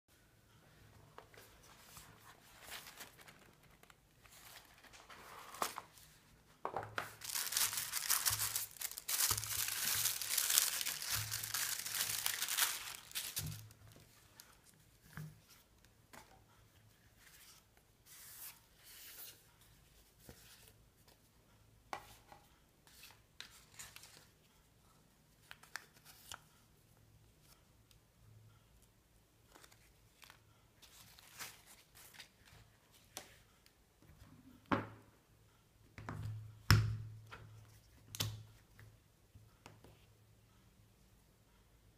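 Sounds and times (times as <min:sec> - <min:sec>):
packaging crinkling and tearing: 0:07.0 - 0:13.8.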